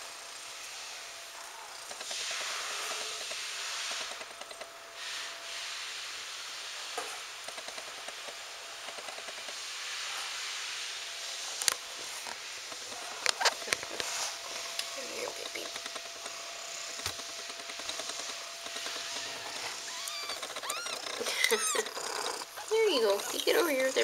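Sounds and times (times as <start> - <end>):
steady hiss: 0.0 - 24.0
close rustling and handling: 11.6 - 24.0
sharp clicks and knocks: 14.7 - 21.2.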